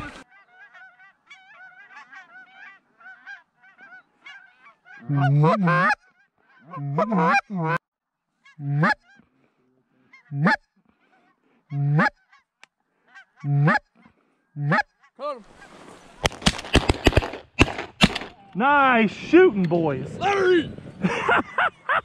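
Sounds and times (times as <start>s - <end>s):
goose honking: 0.0s - 7.8s, 8.4s - 9.3s, 10.0s - 14.0s, 14.6s - 15.9s.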